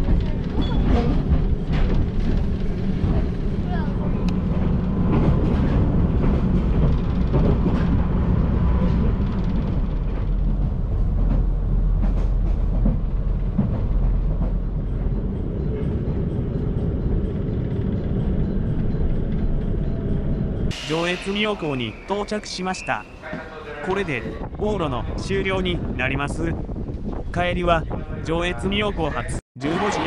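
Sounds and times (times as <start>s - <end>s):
rail clicks and knocks: 0.0s - 23.6s
train rumbling on rails: 0.0s - 29.4s.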